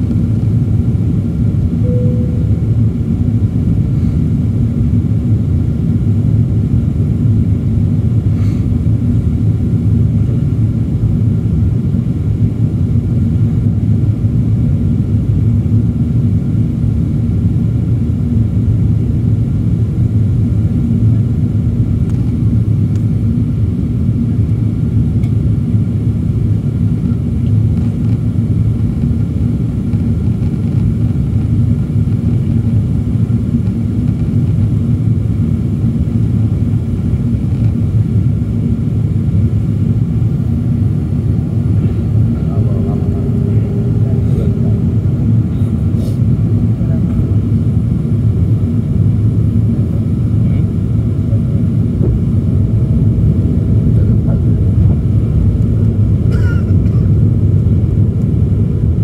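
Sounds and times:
airplane cabin engine rumble: 0:00.0 - 0:59.0.

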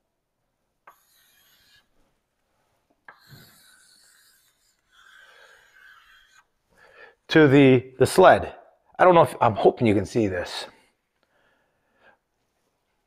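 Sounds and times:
chalk scratching on blackboard: 0:00.9 - 0:02.1, 0:03.1 - 0:06.6.

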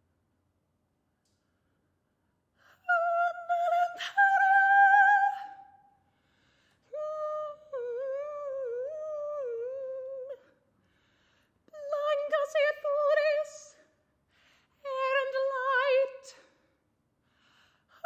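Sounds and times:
woman singing wordless notes: 0:02.8 - 0:05.8, 0:06.9 - 0:10.5, 0:11.7 - 0:13.8, 0:14.8 - 0:16.4.

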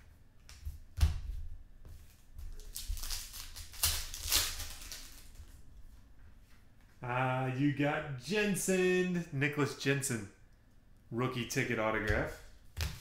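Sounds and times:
cards rustling: 0:02.5 - 0:05.4
foil wrapper crinkling and tearing: 0:02.5 - 0:05.4.

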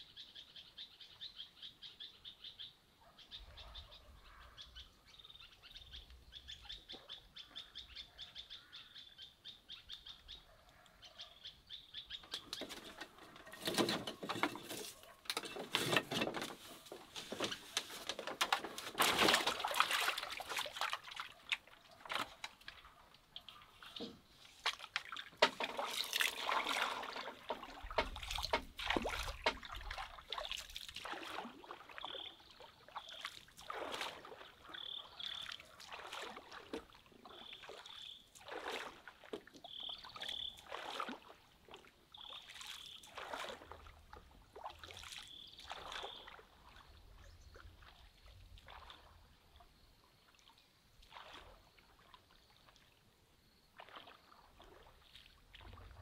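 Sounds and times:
pole splashing through water: 0:12.3 - 0:32.1, 0:33.0 - 0:37.0, 0:37.6 - 0:44.0, 0:44.6 - 0:46.8, 0:48.6 - 0:49.2, 0:50.3 - 0:51.8, 0:53.8 - 0:56.0.

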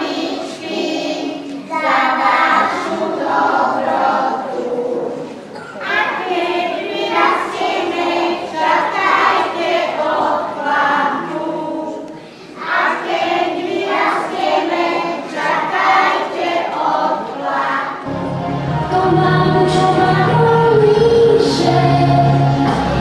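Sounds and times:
music: 0:00.0 - 0:12.1, 0:17.9 - 0:23.0
children singing in unison: 0:00.0 - 0:23.0.

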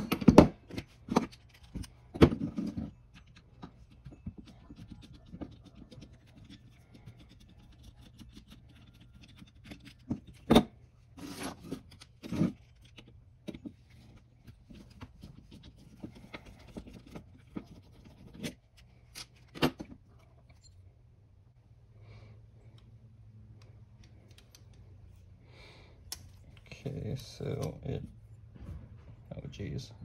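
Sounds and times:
screwdriver scraping metal parts: 0:00.0 - 0:10.6, 0:11.2 - 0:19.8.

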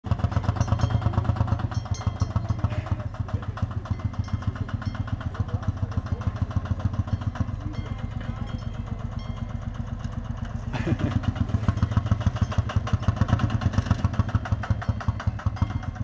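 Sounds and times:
diesel tractor engine running: 0:00.0 - 0:16.0.

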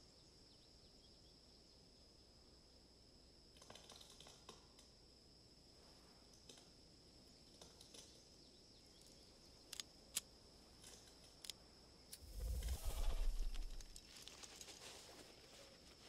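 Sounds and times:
faint high whine: 0:12.0 - 0:15.7
deep rumble: 0:12.2 - 0:14.0.

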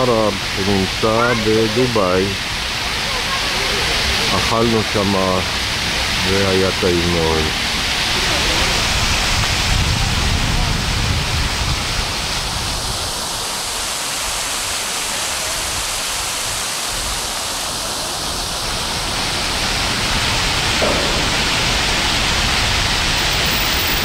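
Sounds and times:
loud rushing noise: 0:18.8 - 0:24.0.

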